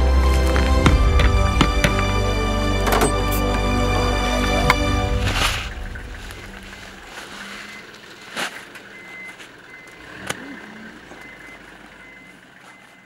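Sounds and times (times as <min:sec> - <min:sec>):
low rumble: 0:00.0 - 0:08.4
sharp knocks: 0:00.5 - 0:04.0
reversing alarm beeping: 0:05.7 - 0:07.9, 0:08.9 - 0:10.1, 0:11.2 - 0:13.0.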